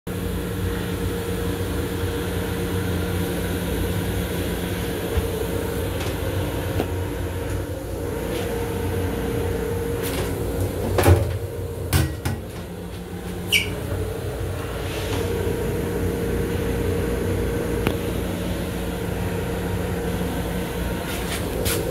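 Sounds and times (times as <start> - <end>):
railcar hum and rumble: 0.2 - 21.9
short squeak: 13.5 - 13.8.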